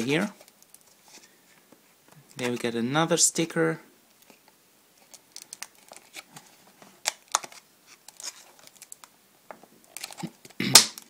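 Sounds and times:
plastic packaging crinkling: 5.0 - 9.2, 9.8 - 11.0
sharp plastic snaps: 9.9 - 11.0.

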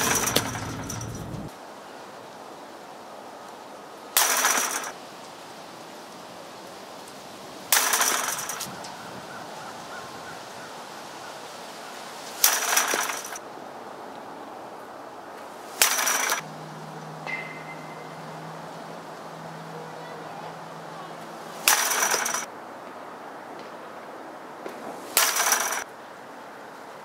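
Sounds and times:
baseballs hitting chain-link fence: 0.0 - 1.5, 4.2 - 5.0, 7.7 - 8.8, 12.4 - 13.4, 15.7 - 16.5, 17.2 - 18.4, 21.5 - 22.5, 25.1 - 25.8.

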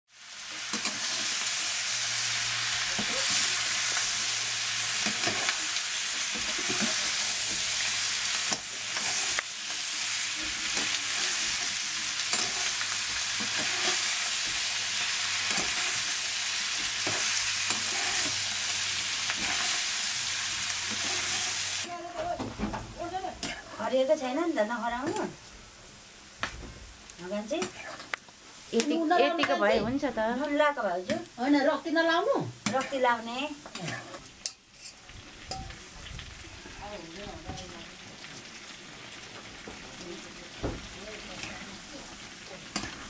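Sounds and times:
pork sizzling in hot oil: 0.1 - 43.0
stirring scrapes in pan: 0.4 - 1.9, 2.7 - 21.8, 27.6 - 28.2, 32.6 - 36.0.

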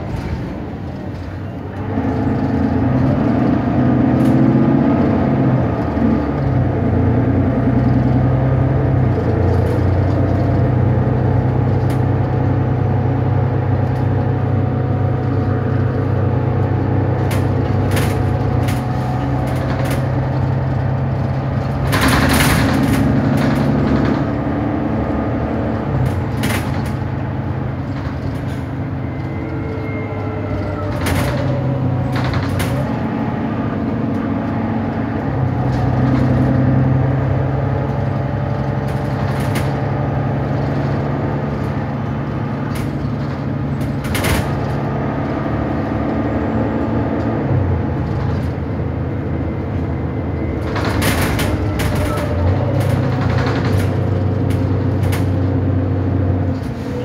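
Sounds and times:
bus diesel engine drone: 0.0 - 57.0
bodywork clicks and rattles: 7.4 - 56.8.

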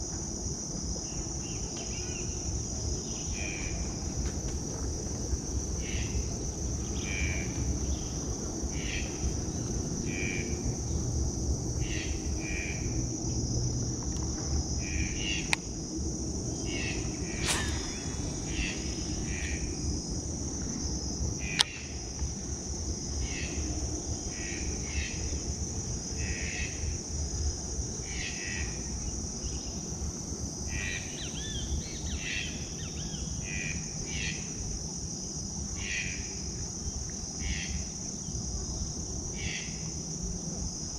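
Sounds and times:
insects droning: 0.0 - 40.9
low rumble: 16.1 - 21.2
short chirping calls: 17.4 - 19.8.

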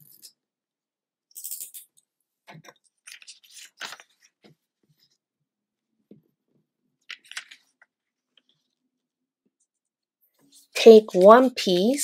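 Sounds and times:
paper rustling: 2.9 - 5.2, 7.1 - 8.8.

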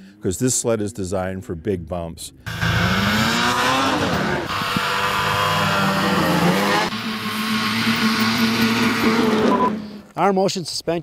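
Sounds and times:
snowmobile engine revving: 2.5 - 10.0.

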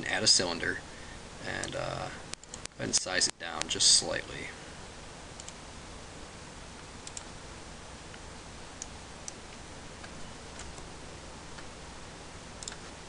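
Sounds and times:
microphone hiss: 0.0 - 13.0
faint computer clicks: 1.6 - 3.8, 5.4 - 5.6, 7.0 - 7.3, 12.6 - 12.9.

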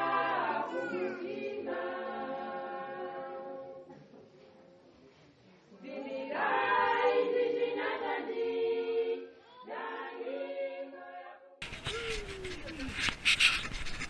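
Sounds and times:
choir singing: 0.0 - 4.1, 5.8 - 11.6.

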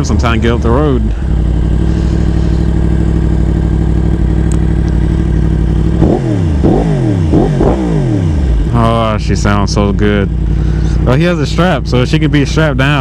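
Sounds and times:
motorcycle engine idling and revving: 0.0 - 13.0.

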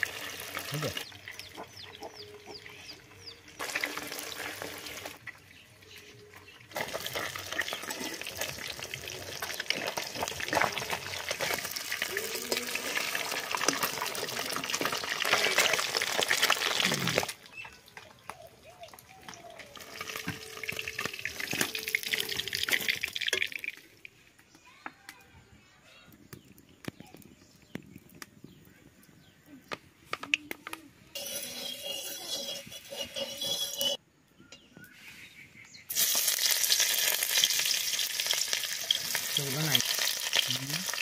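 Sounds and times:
fish frying in hot oil: 0.0 - 1.2, 3.6 - 5.2, 6.7 - 17.3, 19.6 - 23.9, 35.9 - 41.0.

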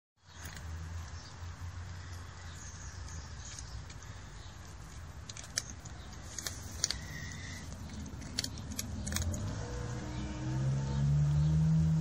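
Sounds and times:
cat chewing dry kibble: 2.7 - 9.5.

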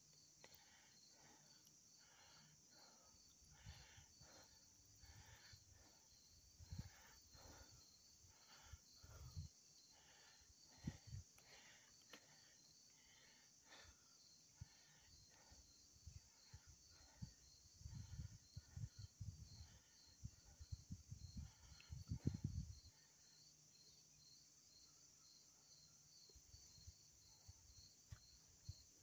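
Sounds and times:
insects chirping: 0.0 - 29.0.

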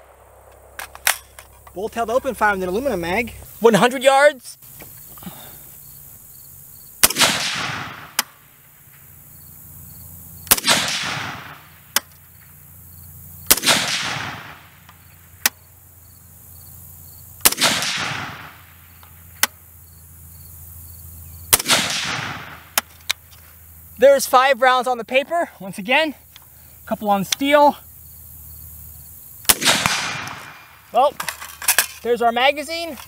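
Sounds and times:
rifle shots echoing: 7.0 - 9.0, 10.4 - 12.1, 13.4 - 14.8, 17.4 - 18.9, 21.5 - 22.9, 29.4 - 30.9.

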